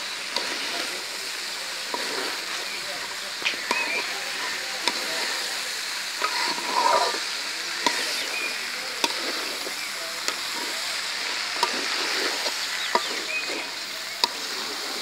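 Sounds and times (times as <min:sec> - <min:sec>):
chickpeas sizzling in a pan: 0:00.0 - 0:15.0
spatula scraping a metal pan: 0:06.2 - 0:14.6.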